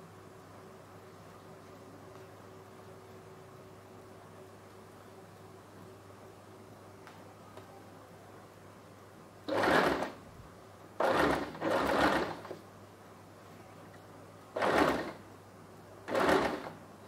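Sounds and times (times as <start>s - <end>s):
sewing machine stitching: 9.5s - 10.2s, 11.0s - 12.6s, 14.6s - 15.2s, 16.1s - 16.8s.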